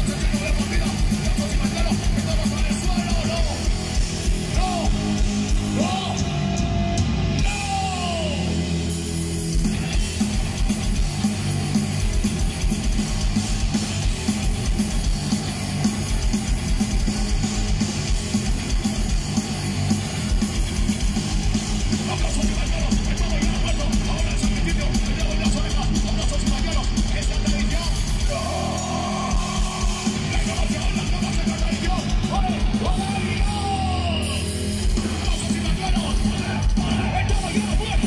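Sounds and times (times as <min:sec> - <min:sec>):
punk band playing live: 0:00.0 - 0:38.0
shouted vocals: 0:04.4 - 0:08.7, 0:22.0 - 0:38.0.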